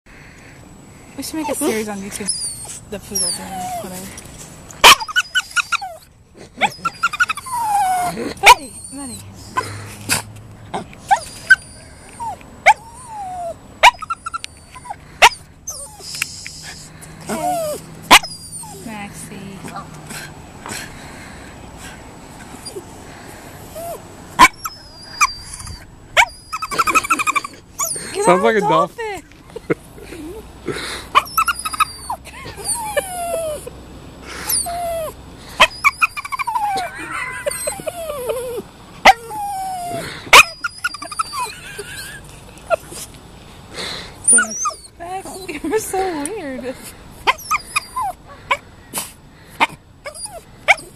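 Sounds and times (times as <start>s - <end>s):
dog yipping and whining: 1.4s - 4.0s, 4.8s - 9.3s, 11.0s - 18.9s, 23.7s - 28.8s, 31.1s - 33.7s, 34.4s - 43.0s, 44.2s - 45.5s, 47.2s - 48.6s, 49.6s - 50.9s.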